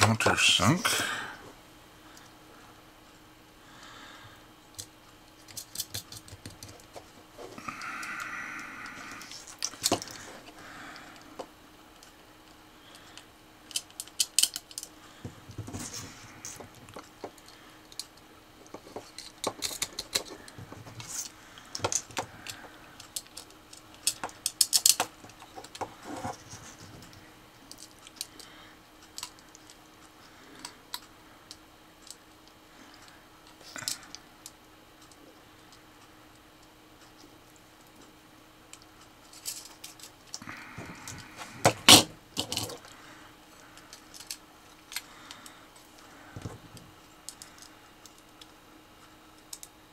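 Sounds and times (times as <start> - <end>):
small metal parts clicking and tapping: 4.7 - 7.0, 12.9 - 14.9, 16.4 - 20.4, 21.0 - 25.9, 38.7 - 40.4, 41.9 - 43.0, 43.8 - 45.9, 49.4 - 49.7.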